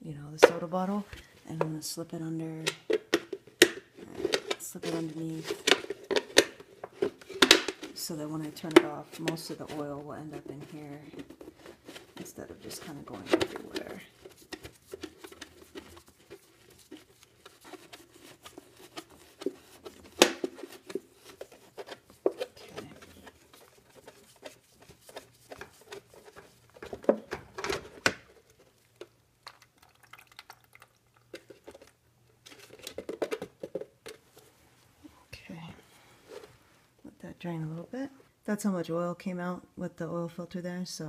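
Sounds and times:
plastic bottle crinkling: 2.6 - 34.5.

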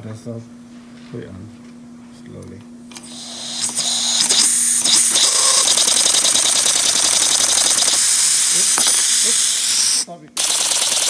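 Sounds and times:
air hissing through engine: 2.9 - 6.5, 7.7 - 10.1
fast mechanical piston rattle: 2.9 - 11.0.

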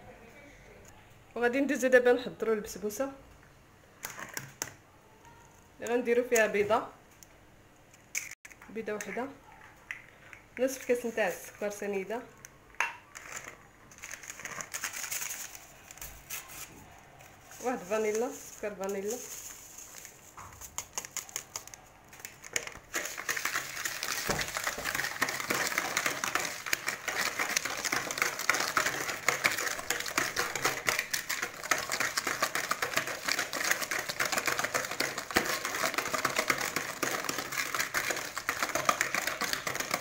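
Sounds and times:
paper sachet rustling: 13.1 - 39.9.

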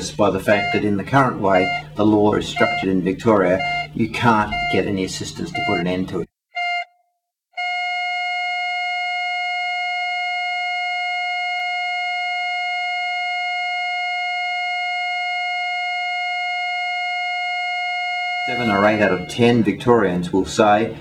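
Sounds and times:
heart monitor flatline tone: 0.2 - 6.0, 6.6 - 6.9, 7.6 - 19.6.

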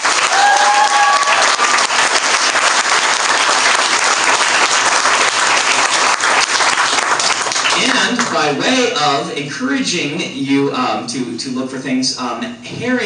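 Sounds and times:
audience applause: 0.0 - 8.6.

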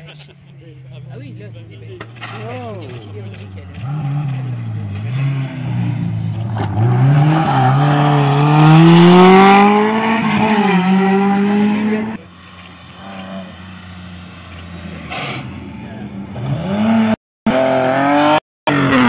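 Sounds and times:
rally car engine accelerating: 2.0 - 12.2, 14.4 - 19.0.

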